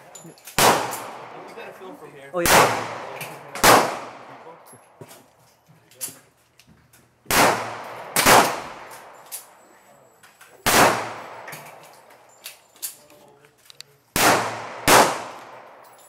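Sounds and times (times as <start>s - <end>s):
pistol shots with echo: 0.6s - 1.5s, 2.4s - 4.6s, 7.3s - 9.6s, 10.6s - 12.0s, 14.1s - 15.9s.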